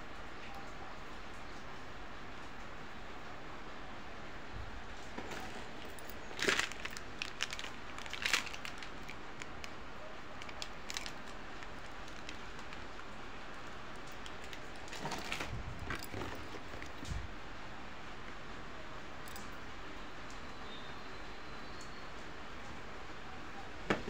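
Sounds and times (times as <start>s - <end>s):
packaging crinkling: 5.1s - 17.2s.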